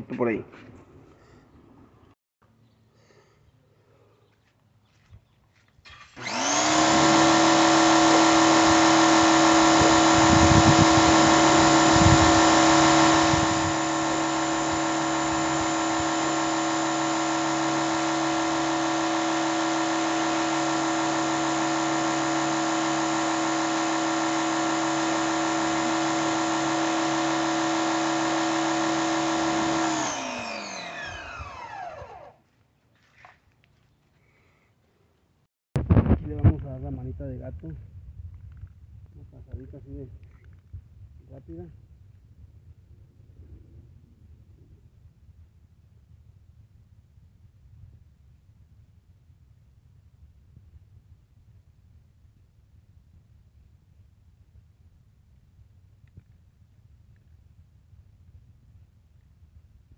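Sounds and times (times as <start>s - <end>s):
motor winding down: 5.9s - 32.4s
pressure washer motor humming: 5.9s - 32.4s.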